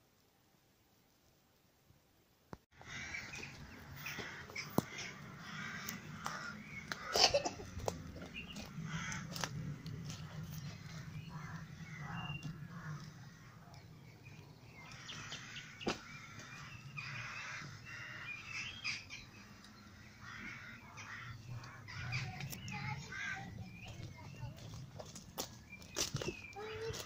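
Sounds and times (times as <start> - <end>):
crows cawing: 2.8 - 14.1, 14.7 - 24.5.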